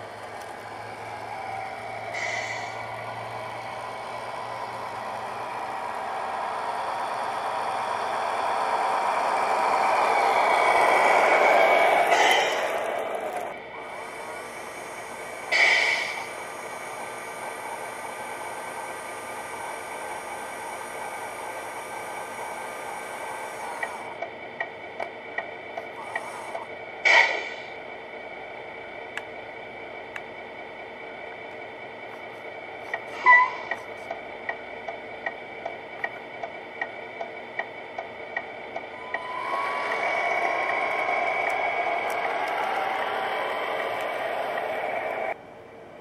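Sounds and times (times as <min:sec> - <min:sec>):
electronic truck engine idling: 0:00.0 - 0:46.0
regular ticking: 0:16.3 - 0:26.6, 0:33.7 - 0:45.4.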